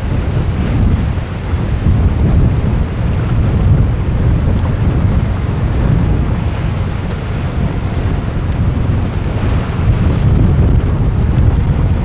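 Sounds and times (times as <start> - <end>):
gusty wind buffeting microphone: 0.0 - 12.0
sea washing against rocks: 0.0 - 12.0.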